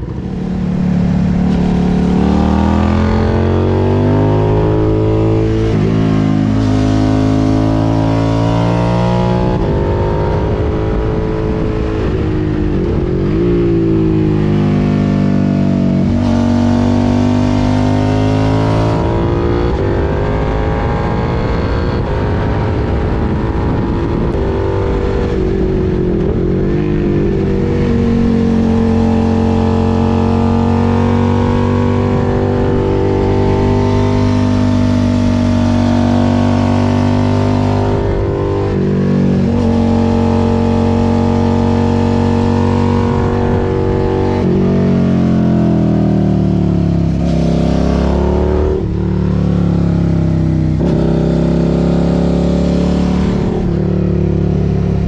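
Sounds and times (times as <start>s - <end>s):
motorcycle engine running: 0.0s - 7.8s.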